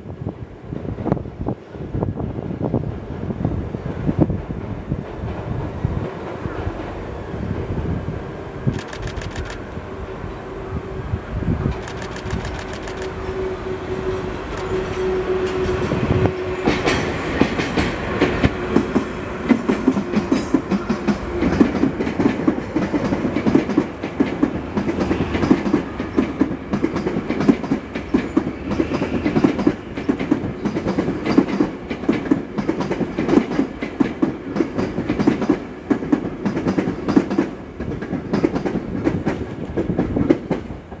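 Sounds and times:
diesel locomotive engine hum: 0:00.0 - 0:41.0
train wheels clattering over rail joints: 0:11.7 - 0:13.2, 0:14.5 - 0:41.0.

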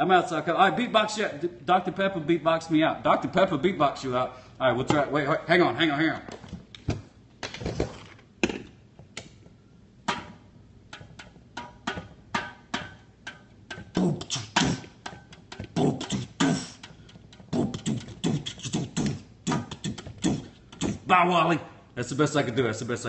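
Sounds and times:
fingers tapping on a can: 0:10.1 - 0:21.0
mouth percussion: 0:10.1 - 0:21.3.

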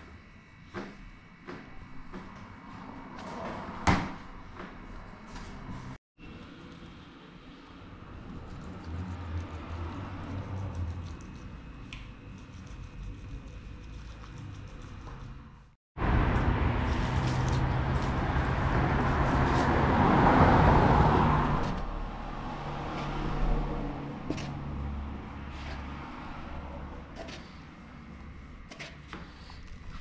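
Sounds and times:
street noise: 0:07.2 - 0:12.4, 0:14.4 - 0:30.0
vehicle engine passing by: 0:08.0 - 0:11.6, 0:16.0 - 0:28.4.

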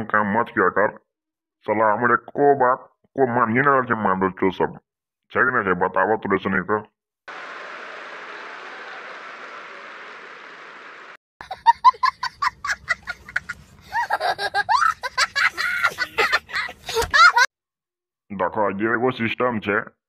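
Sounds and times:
audience applauding: 0:07.3 - 0:11.2
boy laughing hard: 0:11.4 - 0:17.5.

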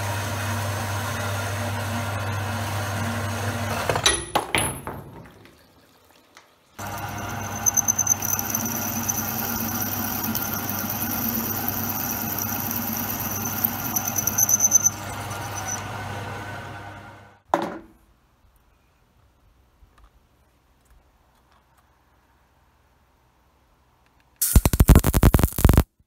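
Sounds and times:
drill bit squealing in steel: 0:06.8 - 0:15.8
drill press humming: 0:06.8 - 0:17.4.

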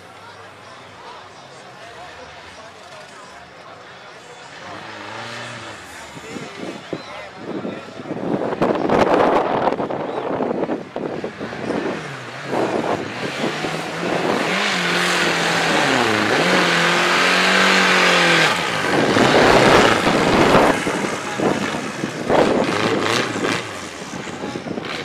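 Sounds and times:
buggy engine revving: 0:04.4 - 0:06.9, 0:07.5 - 0:25.0
tyres churning through mud: 0:11.2 - 0:25.0.

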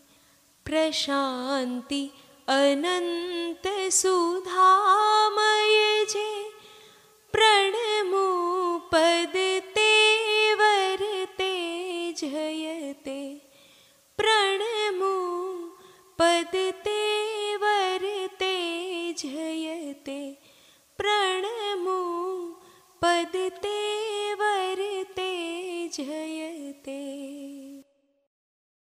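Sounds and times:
high voice singing unaccompanied: 0:00.7 - 0:06.5, 0:07.4 - 0:13.4, 0:14.2 - 0:20.4, 0:21.0 - 0:27.8.

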